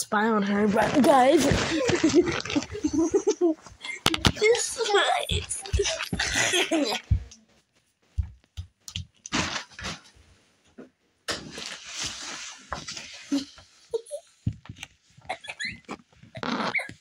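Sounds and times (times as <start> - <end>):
microphone rubbing on fabric: 0.5 - 8.3
child laughing: 1.3 - 7.3, 13.3 - 14.2, 15.3 - 17.0.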